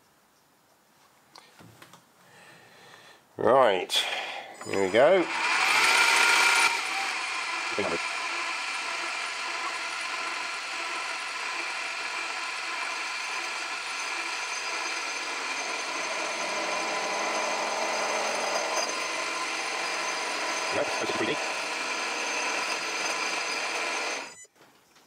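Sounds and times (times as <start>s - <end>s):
cutting tool scraping metal: 4.6s - 24.4s
metal lathe whining: 4.6s - 24.4s.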